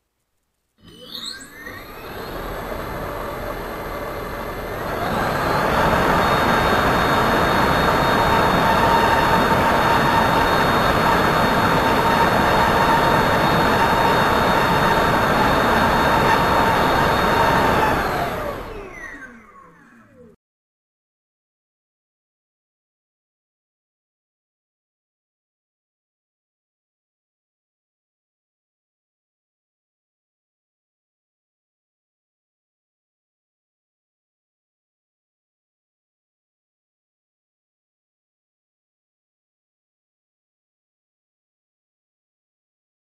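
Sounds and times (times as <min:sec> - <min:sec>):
electric motor fan whining: 0:01.6 - 0:20.4.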